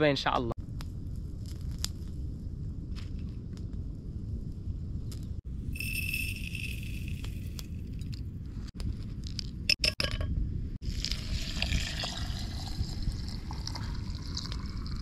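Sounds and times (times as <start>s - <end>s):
glass clinks: 5.8s - 7.5s
tea pouring into a glass: 10.9s - 15.0s.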